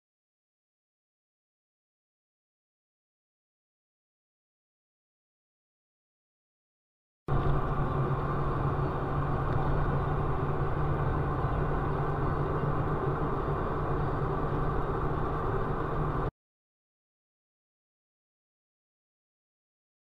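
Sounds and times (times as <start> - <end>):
car engine and road noise: 7.3 - 16.3.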